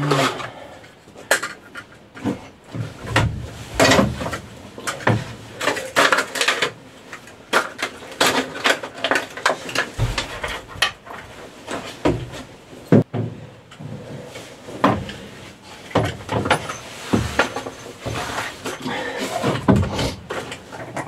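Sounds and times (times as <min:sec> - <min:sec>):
tools clinking on wooden deck: 0:15.9 - 0:18.9.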